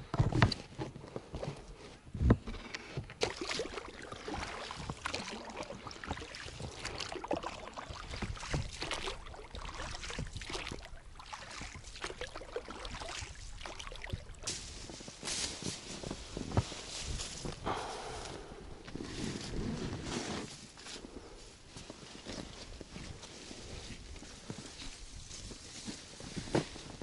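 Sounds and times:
oars splashing water: 3.0 - 19.6.

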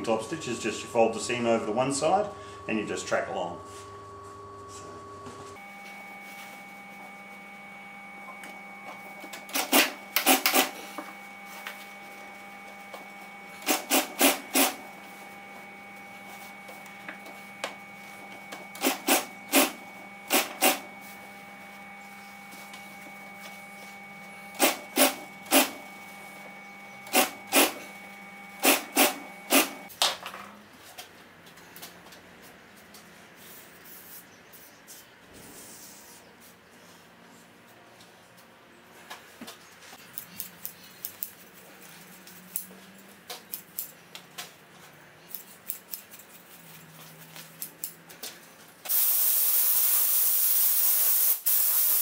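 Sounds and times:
sewing machine motor hum: 5.8 - 29.9.

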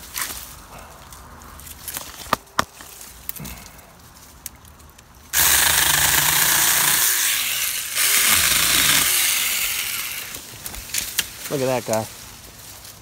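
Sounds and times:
electric chainsaw cutting sapling: 5.4 - 10.4
rustling in brush: 10.4 - 13.0.

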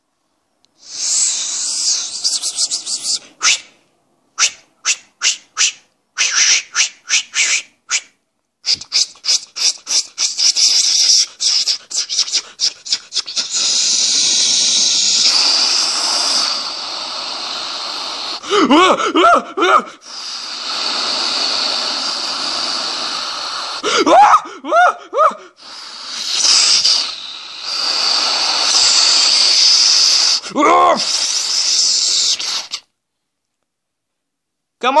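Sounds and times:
steady hissing noise: 0.0 - 4.4, 8.6 - 19.1, 19.8 - 24.0, 25.5 - 33.0.

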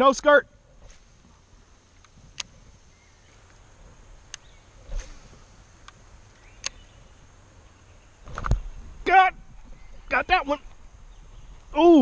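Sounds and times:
faint clicks: 1.9 - 2.6, 3.3 - 5.2, 5.8 - 6.8.

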